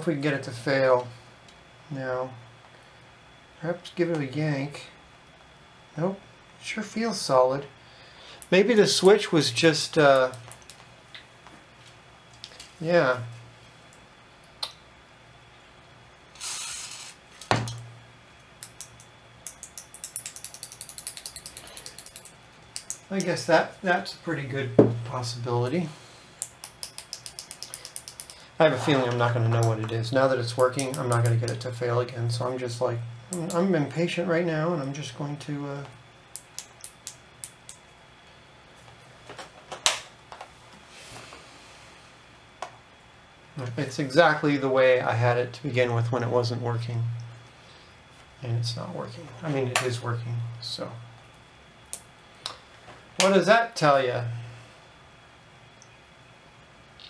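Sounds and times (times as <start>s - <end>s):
aerosol spray can hiss: 16.4s - 17.2s.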